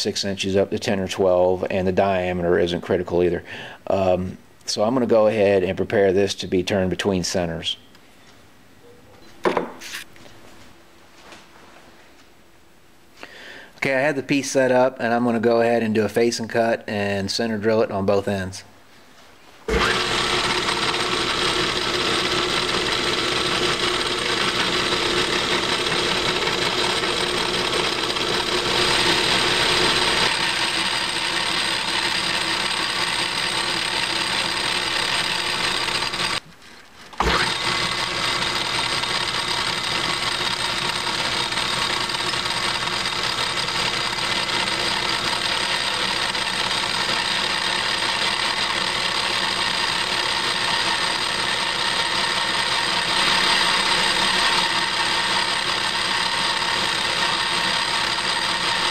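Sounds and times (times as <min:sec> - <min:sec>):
lathe cutting metal: 0:19.7 - 0:36.4, 0:37.2 - 0:58.9.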